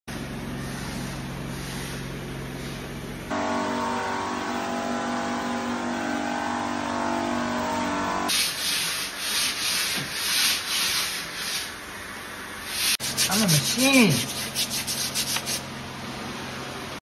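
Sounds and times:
low machine hum: 0.1 - 8.3
electric pump whining: 3.3 - 8.3.

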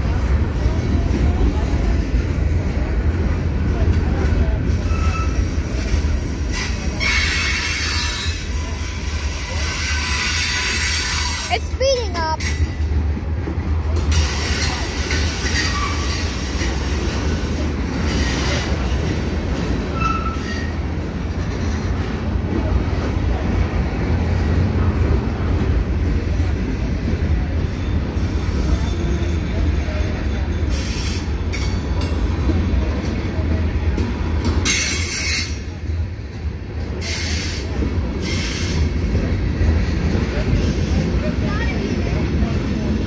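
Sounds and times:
train wheels rumbling on rail: 0.0 - 43.0
wheel squeals: 4.7 - 5.7, 19.9 - 20.8.

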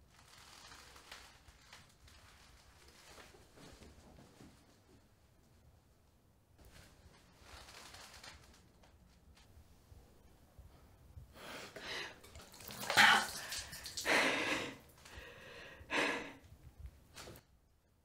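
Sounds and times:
woman gasping: 11.4 - 16.4
woman sipping water: 11.7 - 15.3.

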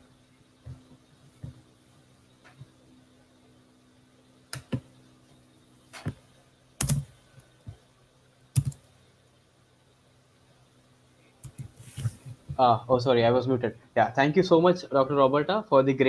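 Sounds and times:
faint steady hum: 0.0 - 16.0
computer keyboard keystrokes: 8.6 - 8.8.

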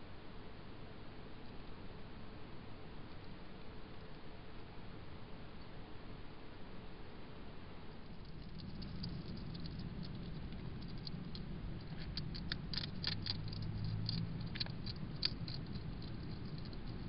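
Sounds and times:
low hum: 7.1 - 17.0
hedgehog crunching dry food: 8.0 - 17.0.

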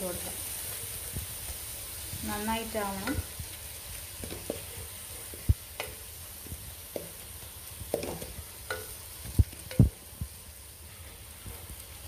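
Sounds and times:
masala sizzling in a pot: 0.0 - 12.0
spatula scraping and knocking pot: 4.2 - 10.0.

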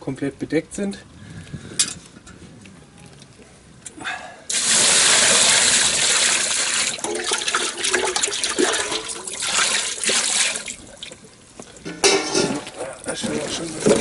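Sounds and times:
brine pouring and splashing: 4.5 - 11.4.

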